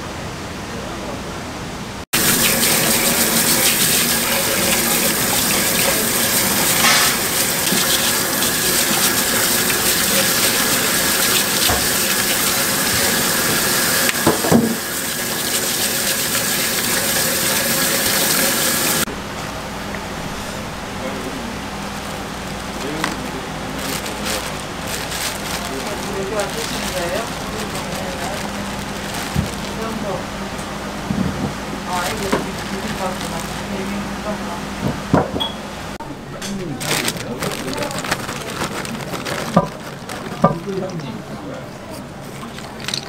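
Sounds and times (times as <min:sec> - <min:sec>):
tap running into metal sink: 0:02.2 - 0:19.0.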